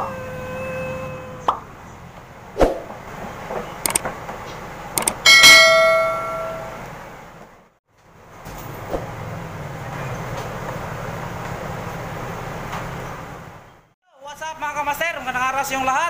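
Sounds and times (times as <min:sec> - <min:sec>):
mouse clicks: 0:05.0 - 0:05.2
notification bell ding: 0:05.0 - 0:06.8.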